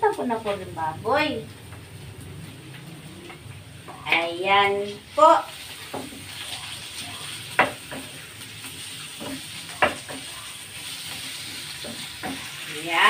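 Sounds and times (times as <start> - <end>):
meat sizzling in a pan: 0.0 - 13.0
spatula scraping the pan: 2.8 - 12.8
spatula knocking against pan: 7.5 - 8.2, 9.2 - 10.3, 11.8 - 12.6.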